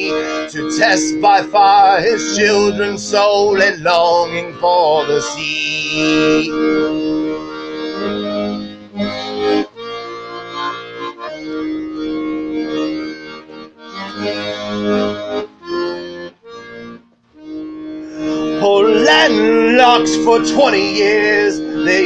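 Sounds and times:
sustained instrumental chords: 0.0s - 22.0s.

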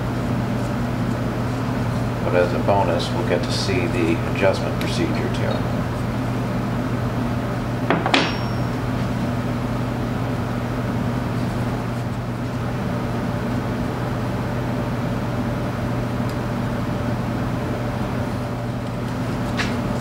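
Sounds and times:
low machine hum: 0.0s - 20.0s
sharp metallic clink: 8.2s - 8.8s.

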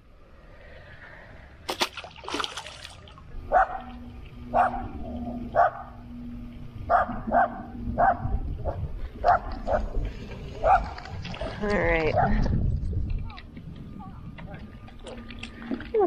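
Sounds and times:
fish splashing into water: 1.6s - 3.2s
dog barking: 3.5s - 3.9s, 4.5s - 4.9s, 5.5s - 5.9s, 6.9s - 9.9s, 10.6s - 11.5s.

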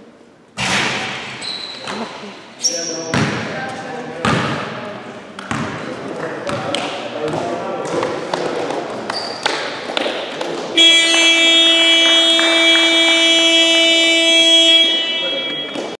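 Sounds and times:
knocks of play on court: 0.6s - 2.2s
scoreboard buzzer tone: 10.8s - 16.0s.

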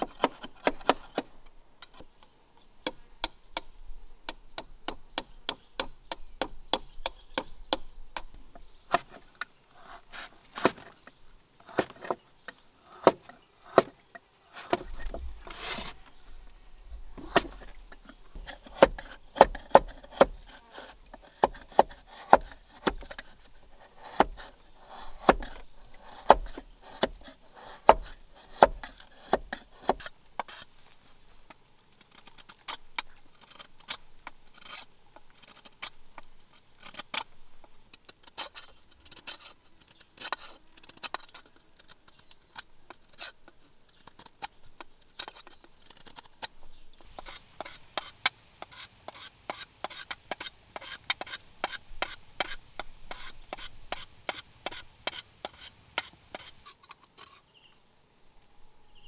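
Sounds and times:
knife chopping bamboo: 0.0s - 1.3s, 12.9s - 14.0s, 17.2s - 17.8s, 18.4s - 23.4s, 24.0s - 30.9s, 47.1s - 56.7s.

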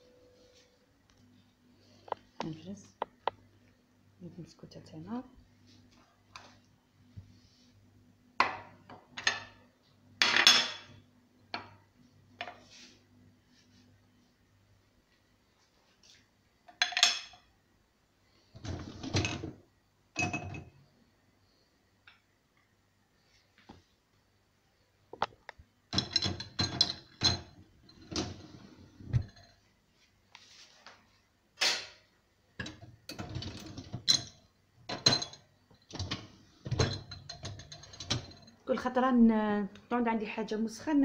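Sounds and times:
dishwasher rack rattling: 26.0s - 29.4s, 36.0s - 38.5s.

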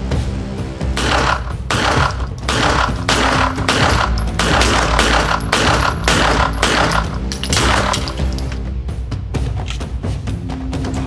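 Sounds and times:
pistol shots echoing indoors: 0.9s - 8.5s.

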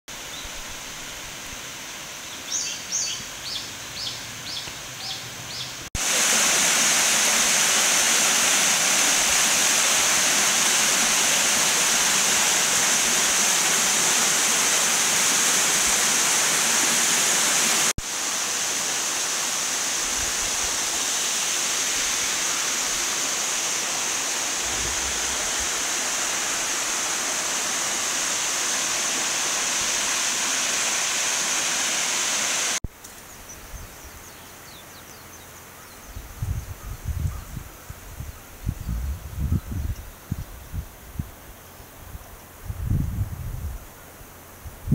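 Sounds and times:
waterfall rushing: 5.9s - 32.8s.

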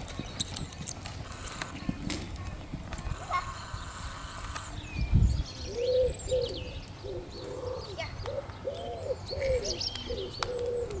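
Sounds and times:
small birds chirping: 0.0s - 11.0s
doves cooing: 5.7s - 11.0s.

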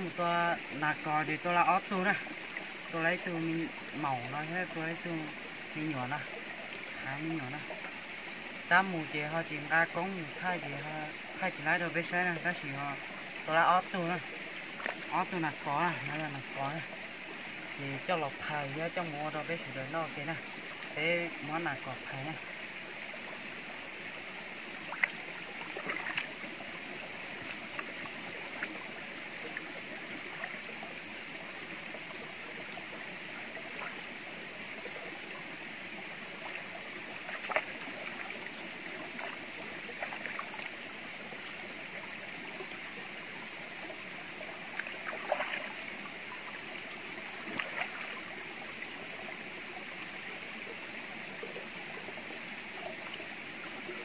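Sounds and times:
stream running over rock: 0.0s - 54.0s
splashes and knocks in water: 14.8s - 15.1s, 24.8s - 26.5s, 37.2s - 40.7s, 44.7s - 46.0s, 46.8s - 48.3s.

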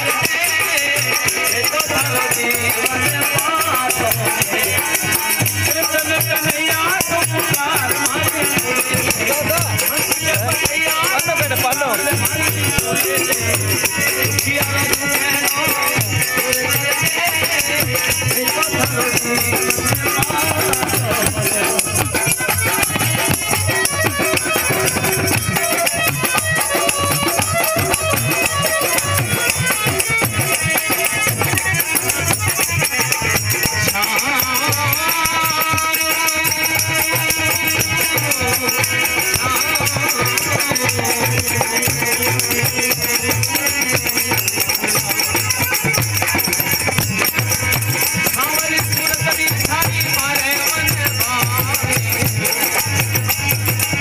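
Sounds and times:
hand drum beats: 0.0s - 54.0s
harmonium playing: 0.0s - 54.0s
jingling hand percussion: 0.0s - 54.0s.

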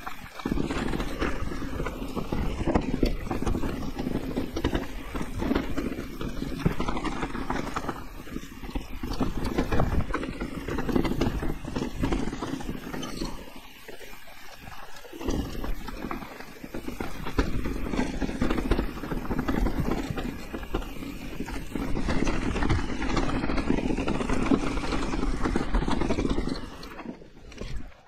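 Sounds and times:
bike knocking and clattering: 0.0s - 27.9s
tyres rumbling over dirt: 0.0s - 28.0s.

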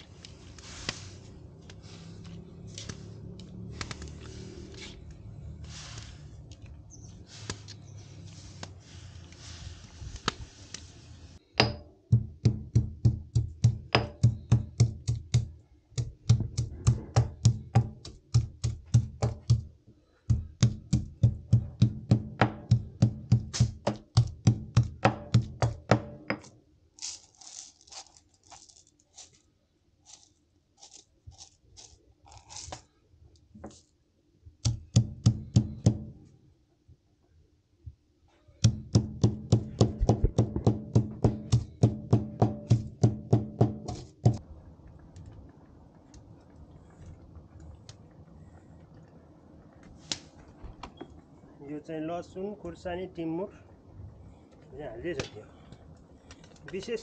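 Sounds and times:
greens sizzling in a wok: 0.0s - 11.4s
pestle pounding in mortar: 11.6s - 19.7s, 20.3s - 26.5s, 34.6s - 36.1s, 38.6s - 44.4s.

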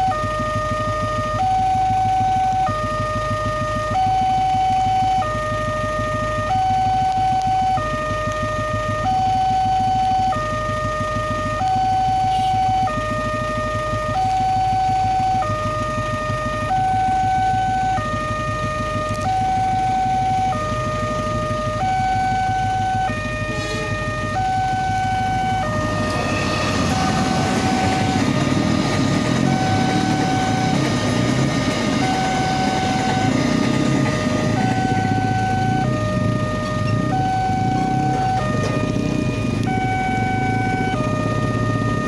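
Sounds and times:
level crossing two-tone alarm: 0.0s - 42.0s
loud rumbling noise: 12.3s - 42.0s.

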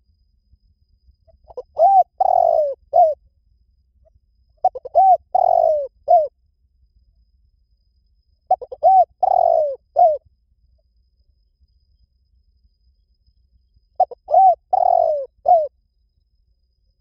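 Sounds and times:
dove cooing: 1.4s - 3.2s, 4.6s - 6.3s, 8.5s - 10.2s, 14.0s - 15.7s.

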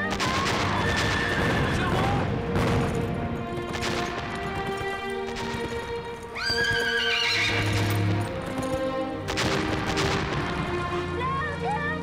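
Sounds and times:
background music with held notes: 0.0s - 12.0s
horse whinnying: 6.3s - 8.2s.

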